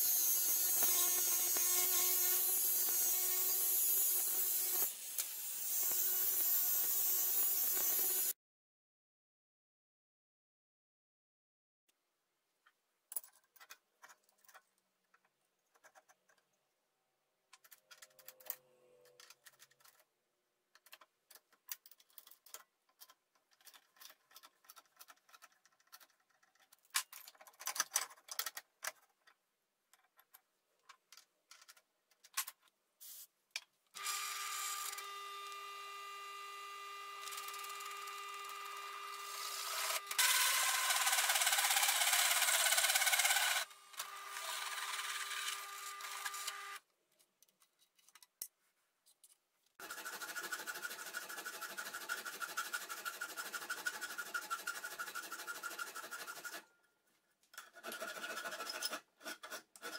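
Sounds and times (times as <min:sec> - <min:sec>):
metal parts clicking and scraping: 0:13.1 - 0:16.4, 0:17.5 - 0:20.1, 0:20.7 - 0:32.7.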